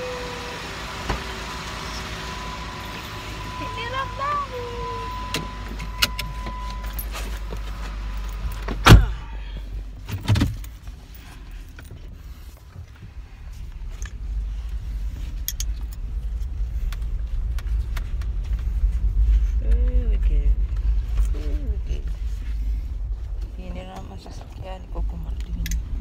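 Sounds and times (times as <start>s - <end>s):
low car rumble: 0.0s - 26.0s
steady beep: 2.2s - 7.0s
car door slamming: 8.7s - 9.3s.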